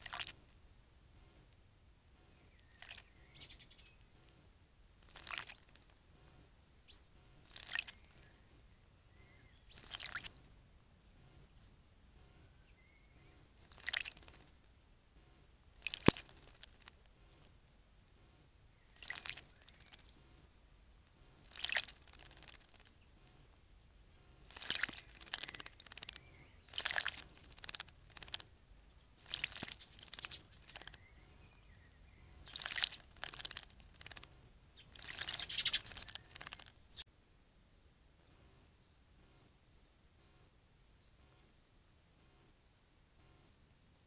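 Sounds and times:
bird splashing in water: 0:00.0 - 0:00.4, 0:02.8 - 0:03.1, 0:05.0 - 0:05.6, 0:07.4 - 0:08.0, 0:09.8 - 0:10.3, 0:13.7 - 0:14.4, 0:15.8 - 0:17.0, 0:19.0 - 0:20.1, 0:21.4 - 0:22.9, 0:24.5 - 0:28.5, 0:29.2 - 0:31.0, 0:32.4 - 0:34.3, 0:34.9 - 0:37.0.

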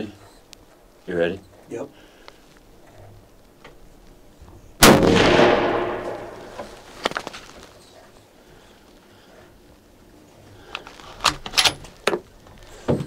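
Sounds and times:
rifle shot: 0:04.8 - 0:06.8.

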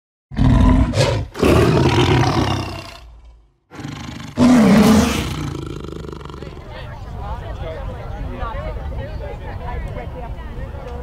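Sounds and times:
tiger roaring: 0:00.3 - 0:03.1, 0:03.7 - 0:06.6.

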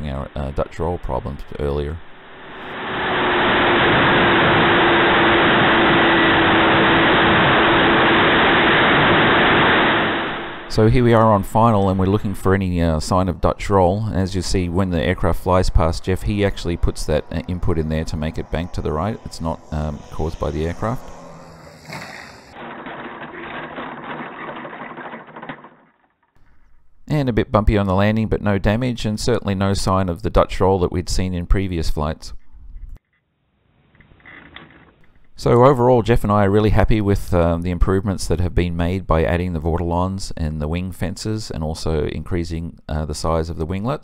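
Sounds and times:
rush of airflow: 0:02.0 - 0:10.8, 0:15.2 - 0:22.6
model aircraft motor droning: 0:02.4 - 0:10.7, 0:15.8 - 0:22.5.

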